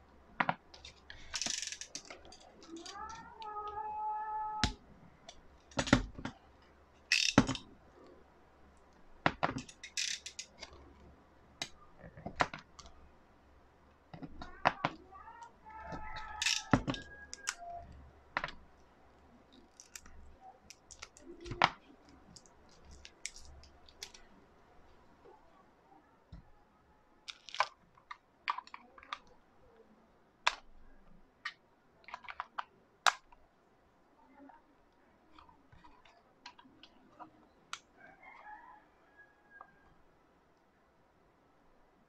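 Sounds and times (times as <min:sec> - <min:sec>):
hands handling plastic parts: 0:00.3 - 0:03.9, 0:04.6 - 0:08.2, 0:08.8 - 0:13.0, 0:13.9 - 0:25.3, 0:27.2 - 0:29.3, 0:31.4 - 0:33.4.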